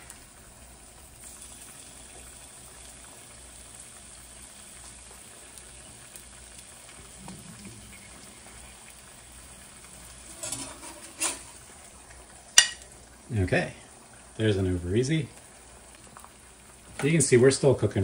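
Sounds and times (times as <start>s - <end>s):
eggs sizzling in a skillet: 0.0s - 18.0s
metal spatula scraping a pan: 10.2s - 11.6s.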